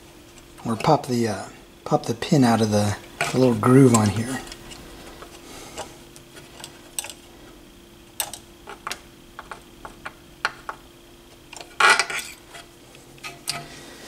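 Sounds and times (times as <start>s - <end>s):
metal pick clicking and scraping: 3.1s - 7.2s, 8.2s - 9.6s, 11.5s - 13.7s.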